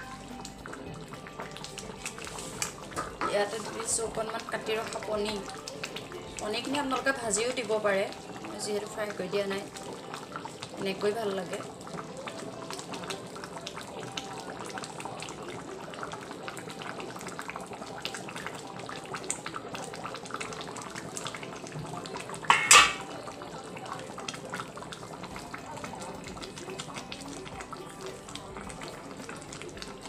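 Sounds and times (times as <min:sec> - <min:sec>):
curry bubbling in a pan: 0:00.0 - 0:30.0
utensil clattering against pan: 0:22.5 - 0:23.1.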